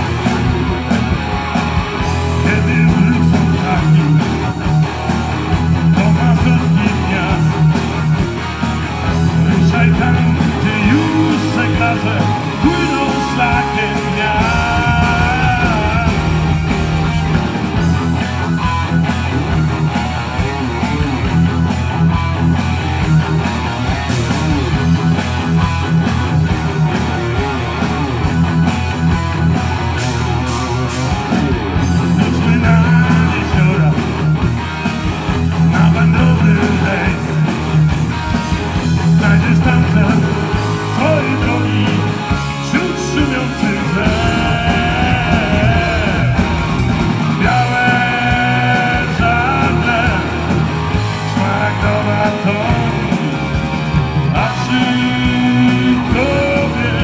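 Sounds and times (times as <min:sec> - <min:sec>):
live rock band playing: 0:00.0 - 0:57.0
person singing: 0:02.4 - 0:04.5, 0:09.4 - 0:17.9, 0:32.1 - 0:34.2, 0:35.7 - 0:37.4, 0:39.1 - 0:46.8, 0:47.4 - 0:53.6, 0:54.4 - 0:57.0.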